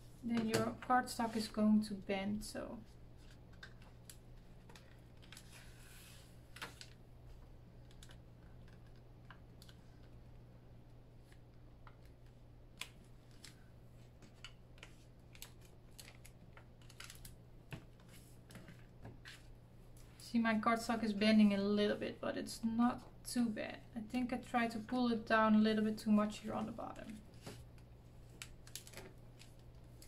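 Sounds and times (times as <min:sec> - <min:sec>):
paper rustling: 0:03.1 - 0:07.0.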